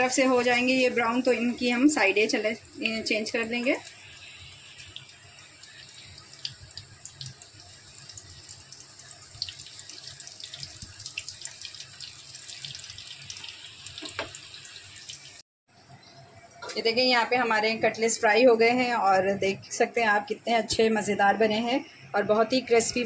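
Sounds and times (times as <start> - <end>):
cutlets sizzling in oil: 0.0 - 15.4.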